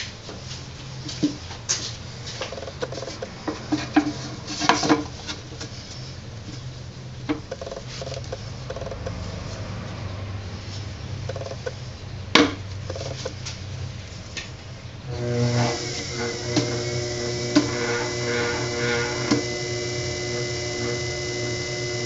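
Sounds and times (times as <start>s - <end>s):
potter's wheel humming: 15.0s - 22.0s.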